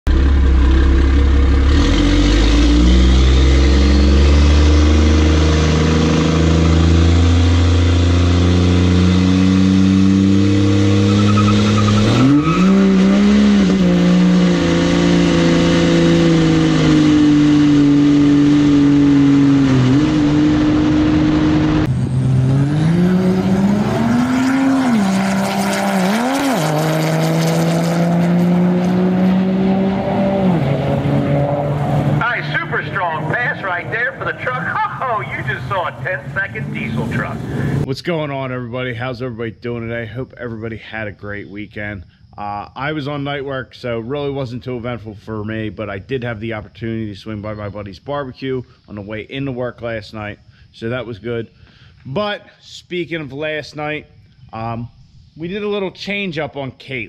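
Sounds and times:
diesel truck engine accelerating: 0:00.1 - 0:37.9.

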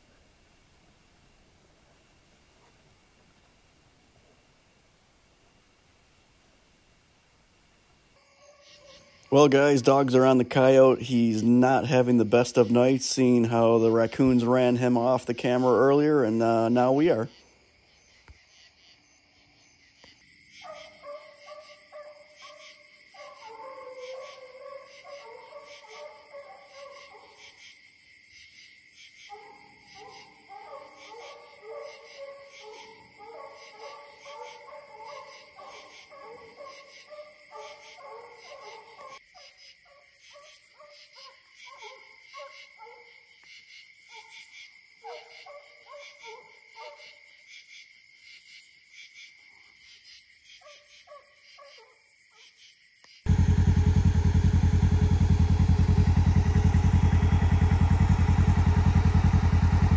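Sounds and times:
distant hounds baying: 0:08.2 - 0:09.3, 0:20.5 - 0:27.7, 0:29.2 - 0:43.3, 0:44.0 - 0:47.2, 0:50.6 - 0:52.4
crickets and night insects chorus: 0:08.2 - 0:59.9.

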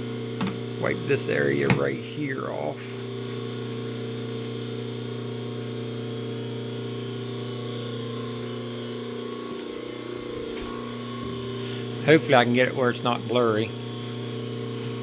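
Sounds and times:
lathe motor and gears humming: 0:00.0 - 0:15.0.

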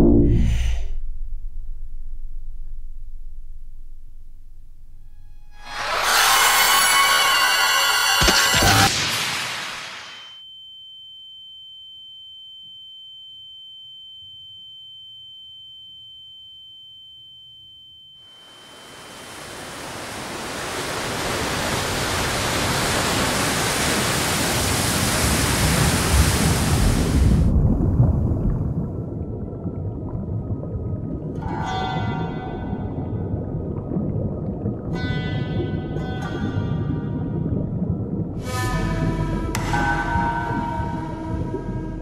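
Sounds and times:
low rumble: 0:00.0 - 0:05.7, 0:27.3 - 0:42.0
steady high-pitched tone: 0:00.0 - 0:09.1, 0:09.8 - 0:20.2
rushing water noise: 0:18.4 - 0:27.8.

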